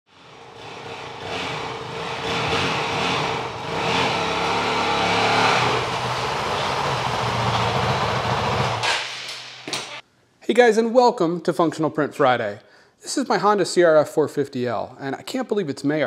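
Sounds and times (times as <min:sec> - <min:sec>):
dirt bike engine revving: 0:00.1 - 0:08.8.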